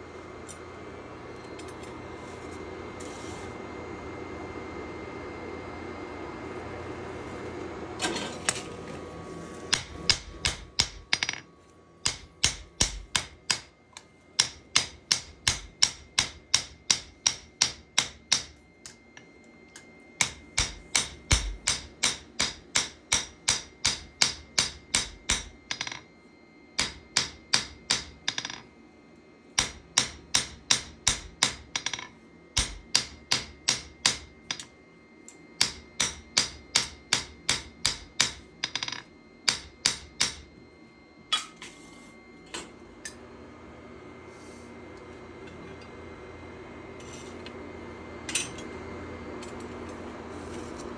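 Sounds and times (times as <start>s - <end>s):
hammer striking steel: 9.7s - 11.4s, 12.0s - 13.7s, 14.4s - 19.0s, 20.2s - 26.0s, 26.8s - 28.6s, 29.6s - 34.7s, 35.6s - 40.5s.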